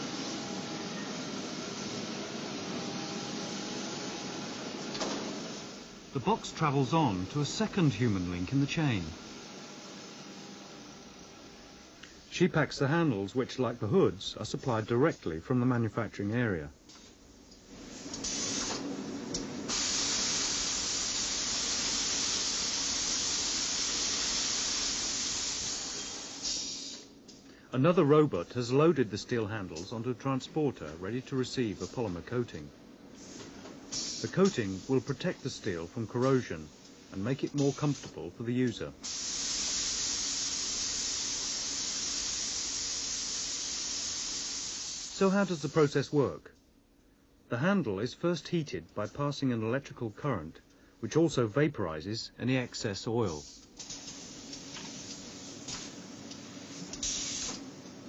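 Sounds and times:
machinery hiss: 0:00.0 - 0:15.8, 0:17.7 - 0:46.3, 0:52.6 - 0:58.0.

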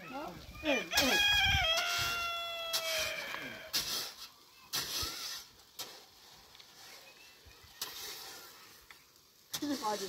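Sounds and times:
rooster crowing: 0:00.9 - 0:03.7
shovel scraping cement powder: 0:01.0 - 0:10.0.

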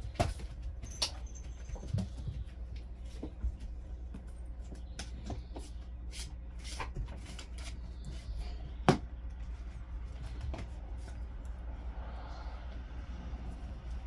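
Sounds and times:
puppies scrabbling on a rug: 0:00.0 - 0:05.8
steady low hum: 0:00.0 - 0:14.0.

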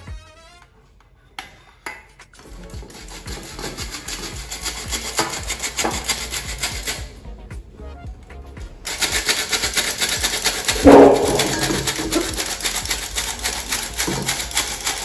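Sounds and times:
flour sifter rasping: 0:08.9 - 0:15.0.

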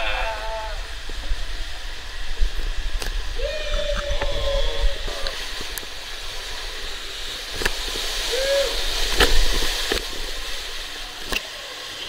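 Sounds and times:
water rushing through tube: 0:00.0 - 0:12.0
splash into pool: 0:07.5 - 0:11.7.

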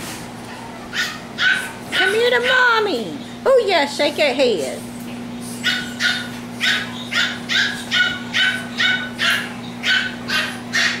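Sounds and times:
puppy yapping: 0:00.4 - 0:02.8, 0:05.5 - 0:11.0.

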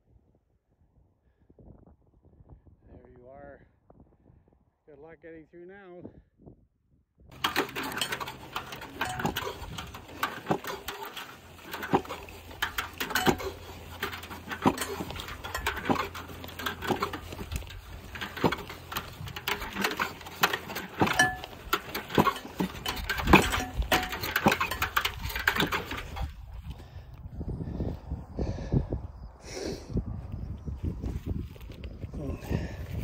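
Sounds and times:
barbed wire spool rattling: 0:07.3 - 0:26.6
dolly rumbling over grass: 0:07.3 - 0:27.0.

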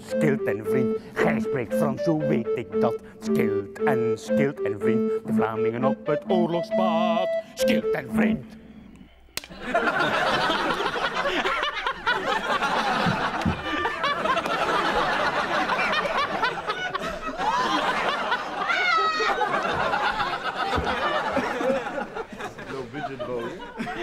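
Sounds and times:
group of people laughing: 0:09.5 - 0:24.0
high-pitched laugh: 0:09.6 - 0:22.5.

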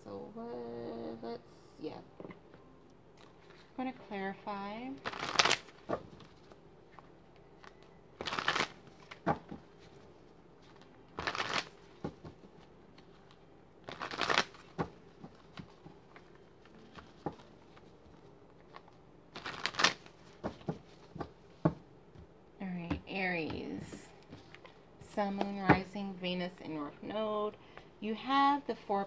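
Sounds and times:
cards being shuffled: 0:05.0 - 0:10.0, 0:10.6 - 0:21.8
cards tapping and clicking: 0:19.4 - 0:21.8.

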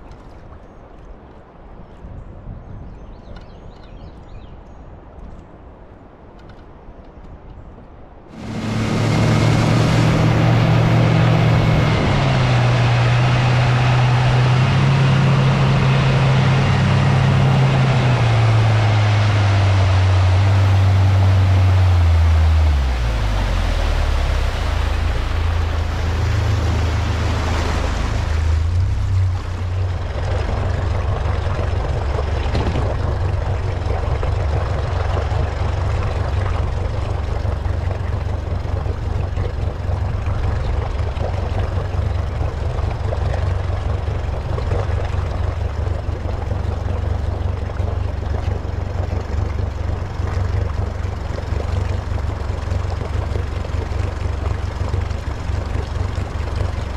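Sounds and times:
wind and river water rushing: 0:07.7 - 0:56.9
outboard motor rumbling: 0:08.3 - 0:56.9.

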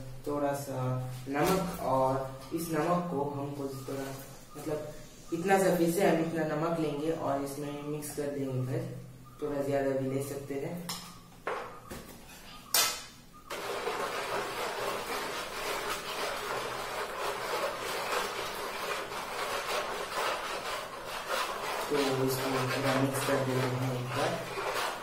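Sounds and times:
person speaking: 0:00.2 - 0:10.9, 0:21.3 - 0:25.0
spoon scraping salt in plastic tray: 0:13.5 - 0:25.0.

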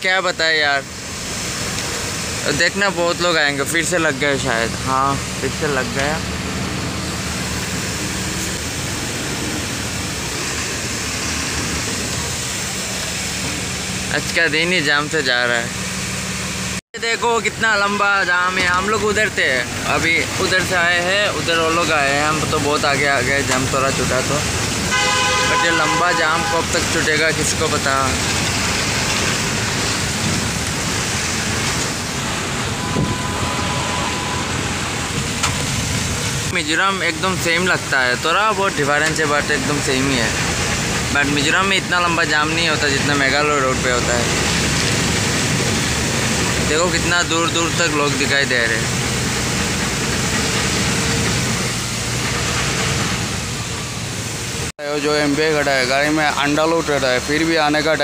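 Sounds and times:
road and wind noise: 0:00.0 - 0:58.0
truck engine humming: 0:00.0 - 0:58.0
rushing wind: 0:27.9 - 0:38.0.

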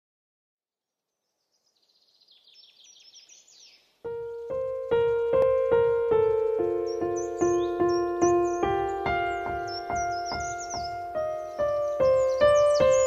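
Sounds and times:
songbird singing high notes: 0:01.4 - 0:13.0
piano melody: 0:04.0 - 0:13.0.

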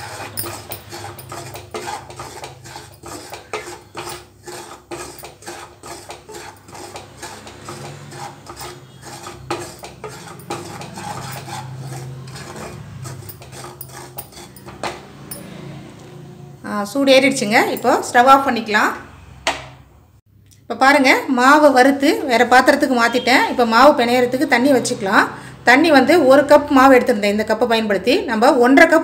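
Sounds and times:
wooden spoon scraping metal pan: 0:00.0 - 0:15.4.

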